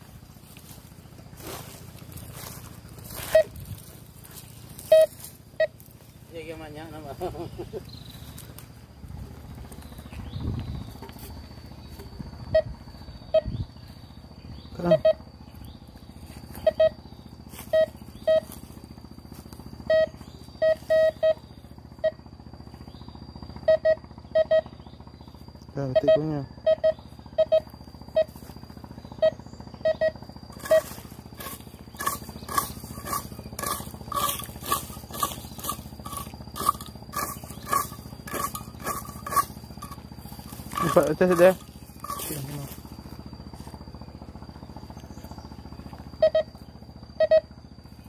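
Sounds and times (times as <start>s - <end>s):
metal detector beeps: 3.1s - 3.7s, 4.8s - 5.8s, 11.9s - 13.6s, 14.8s - 15.2s, 16.5s - 17.0s, 17.6s - 18.7s, 19.8s - 21.4s, 22.0s - 22.2s, 23.6s - 24.7s, 25.8s - 28.5s, 29.2s - 42.8s, 46.2s - 46.6s, 47.2s - 47.5s.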